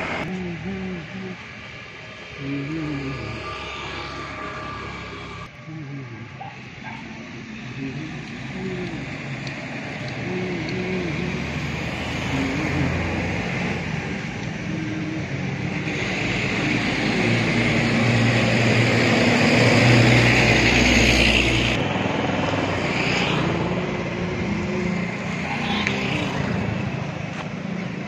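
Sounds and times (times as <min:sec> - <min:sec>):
engine running steadily: 0:00.0 - 0:28.0.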